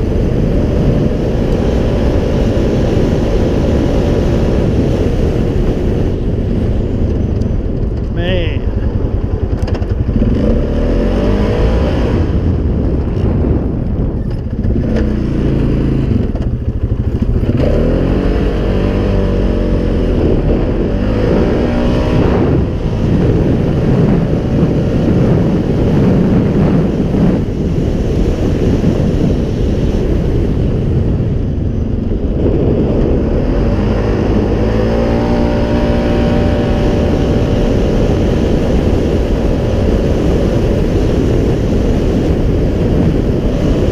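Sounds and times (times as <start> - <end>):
atv engine revving under load: 0.0 - 43.9
wind noise: 0.0 - 43.9.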